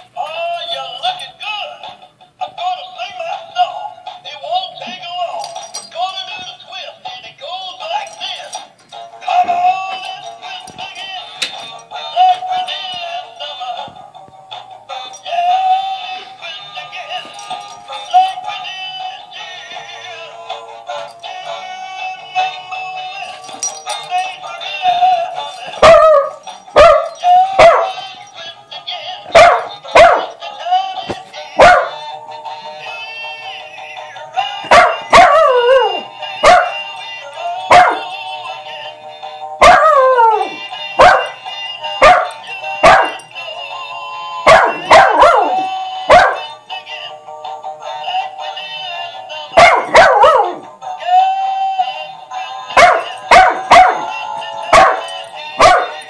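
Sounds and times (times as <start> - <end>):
dog barking: 25.8 - 28.0, 29.4 - 30.3, 31.6 - 32.0, 34.7 - 35.5, 36.4 - 36.8, 37.7 - 38.1, 39.6 - 40.1, 41.0 - 41.4, 42.0 - 43.2, 44.5 - 46.4, 49.6 - 50.6, 52.8 - 54.1, 54.7 - 56.0
toy's synthesized song: 26.4 - 49.9, 50.6 - 56.0.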